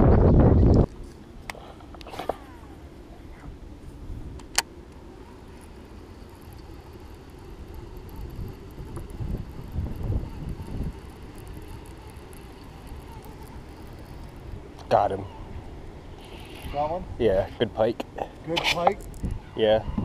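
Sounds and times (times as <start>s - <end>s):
wind buffeting microphone: 0.0s - 1.0s, 5.0s - 17.7s, 18.9s - 20.0s
fishing reel click: 5.2s - 14.9s, 16.2s - 16.8s.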